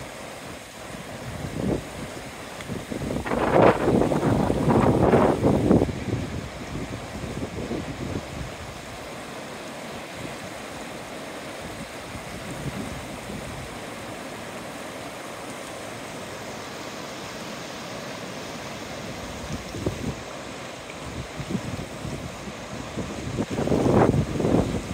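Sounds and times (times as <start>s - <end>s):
river water rushing over stones: 0.0s - 24.9s
wind gusts buffeting microphone: 1.1s - 9.0s, 11.6s - 13.8s, 19.1s - 20.4s, 21.0s - 24.9s.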